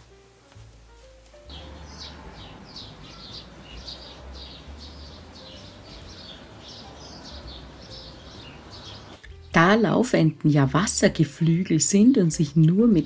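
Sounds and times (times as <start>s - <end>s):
ducklings peeping: 1.5s - 9.2s.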